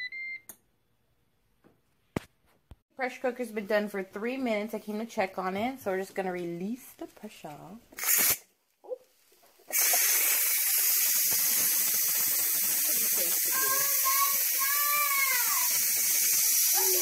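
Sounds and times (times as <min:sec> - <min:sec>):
pressure cooker venting steam: 0:08.0 - 0:08.4, 0:09.6 - 0:17.0.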